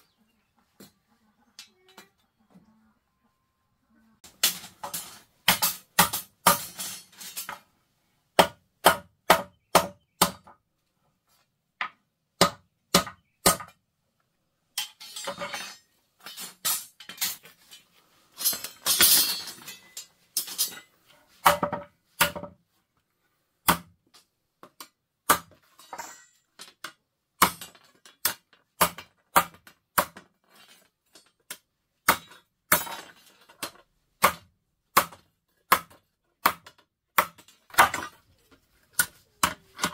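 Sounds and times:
metal tool striking gravel: 0:04.3 - 0:07.6.

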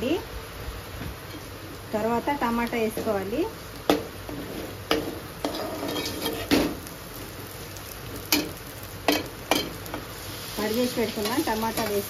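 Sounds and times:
leaves frying in oil: 0:00.0 - 0:12.0
spoon scraping a pan: 0:04.3 - 0:06.8.

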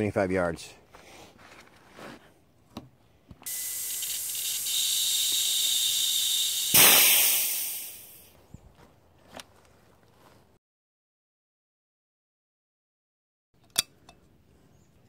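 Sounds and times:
compressed air hissing through hose: 0:03.4 - 0:08.3
rush of air bleeding: 0:03.5 - 0:08.3.

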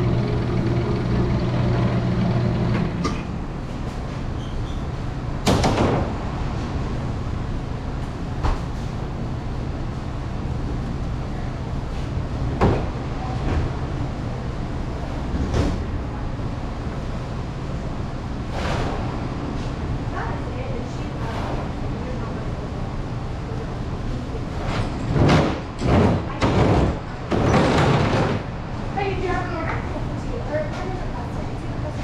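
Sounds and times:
low kitchen hum: 0:00.0 - 0:32.0
knocks and clatters: 0:24.7 - 0:28.5.

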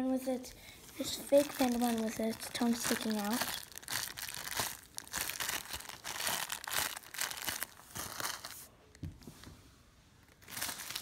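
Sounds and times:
plastic packaging crinkling: 0:00.9 - 0:08.7, 0:10.2 - 0:11.0.

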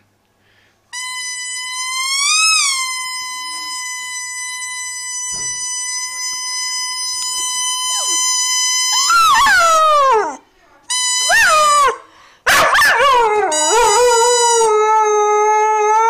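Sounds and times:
toy squeaker high note: 0:00.9 - 0:09.9, 0:10.9 - 0:12.0, 0:13.5 - 0:14.7.

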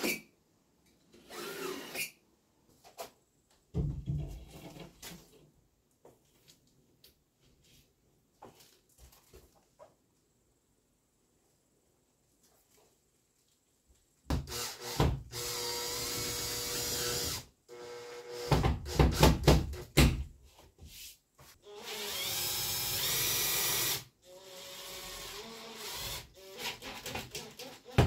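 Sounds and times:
cordless drill whining: 0:01.2 - 0:02.2, 0:14.5 - 0:18.5, 0:21.7 - 0:28.0.

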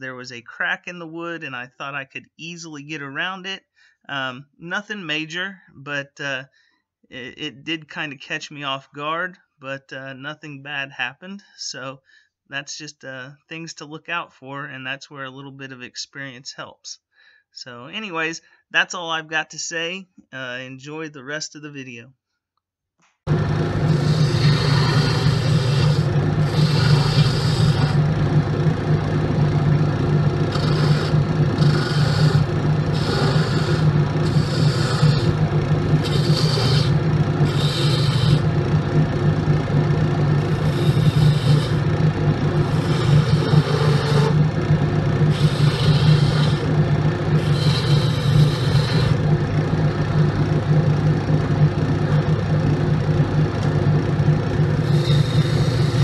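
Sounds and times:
gouge scraping spinning wood: 0:23.3 - 0:56.0
wood lathe motor hum: 0:23.3 - 0:56.0.

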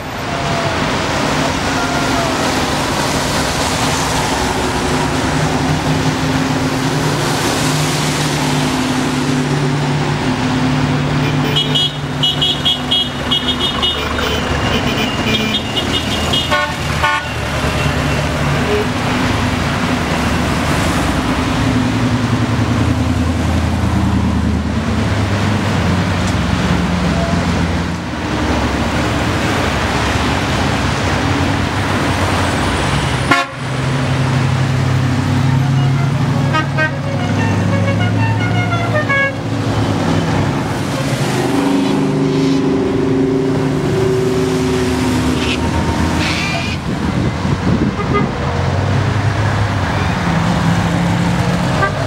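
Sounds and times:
cars driving past: 0:00.0 - 0:52.0
wet road traffic noise: 0:00.0 - 0:52.0
car horns tooting: 0:11.2 - 0:19.0, 0:33.3 - 0:33.6, 0:35.5 - 0:39.5, 0:47.9 - 0:48.4, 0:51.7 - 0:52.0.

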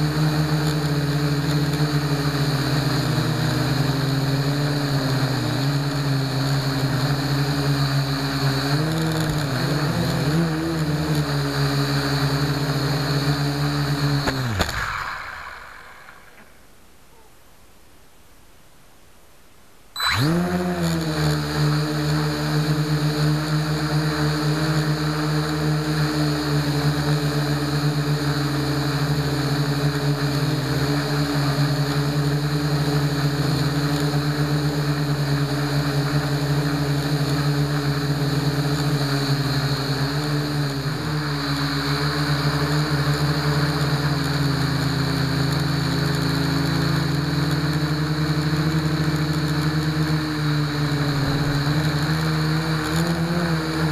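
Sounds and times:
quadcopter motors and propellers: 0:00.0 - 0:17.4, 0:20.0 - 0:53.9.

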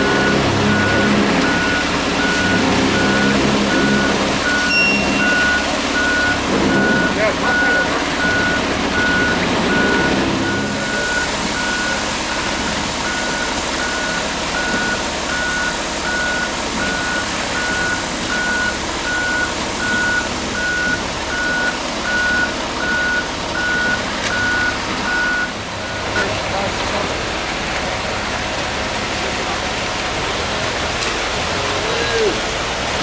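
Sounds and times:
backup alarm beeping: 0:00.0 - 0:26.3
truck engine running: 0:00.0 - 0:33.0.

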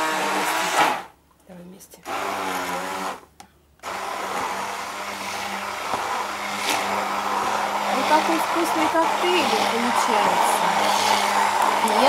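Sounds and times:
stick blender motor hum: 0:02.0 - 0:03.2, 0:03.8 - 0:12.0.

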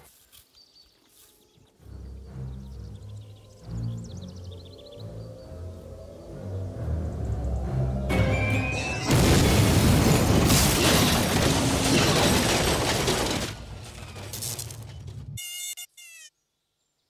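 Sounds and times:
dramatic music score: 0:01.7 - 0:10.6
debris shattering: 0:08.7 - 0:15.4
loud crash and rumble: 0:09.0 - 0:15.4.

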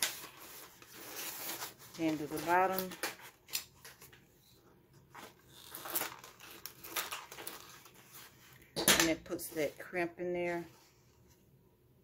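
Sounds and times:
paper crinkling in roller crimper: 0:00.0 - 0:03.7, 0:05.4 - 0:08.2.

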